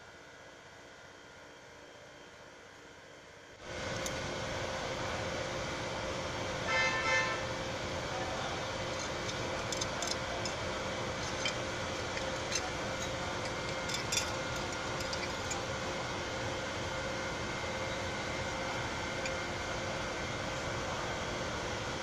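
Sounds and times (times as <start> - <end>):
short horn-like toot: 6.7 - 7.4.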